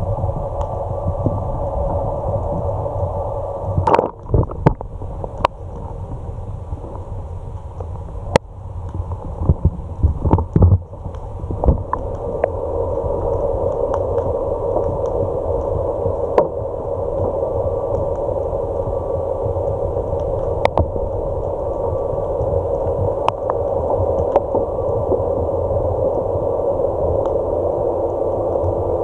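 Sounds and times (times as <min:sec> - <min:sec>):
steady underwater hum: 0:00.0 - 0:29.0
muffled underwater knocks and bumps: 0:09.4 - 0:10.9.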